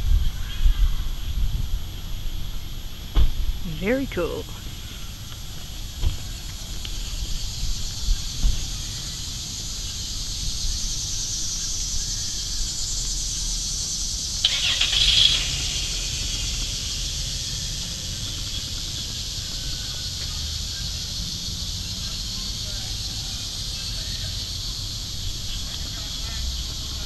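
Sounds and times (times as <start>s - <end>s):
low rumble: 15.1s - 19.9s.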